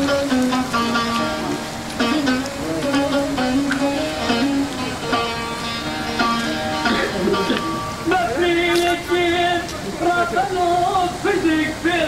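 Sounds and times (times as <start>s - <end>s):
man singing slow melody: 7.6s - 12.0s.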